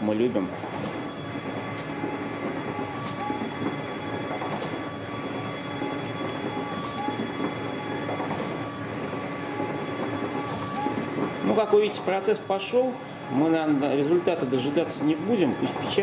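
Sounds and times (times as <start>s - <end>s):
printer carriage whirring: 0.0s - 16.0s.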